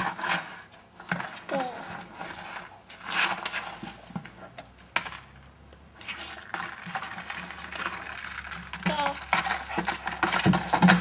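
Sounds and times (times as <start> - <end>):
bucket scraping across gravel: 0.0 - 11.0
bucket knocks: 8.9 - 11.0.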